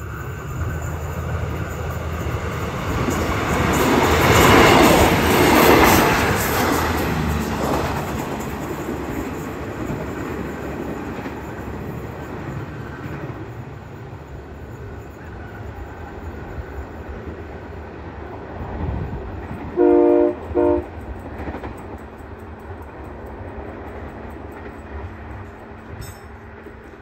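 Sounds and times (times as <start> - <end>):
diesel train rumbling: 0.0 - 27.0
train horn blasts: 19.7 - 21.1.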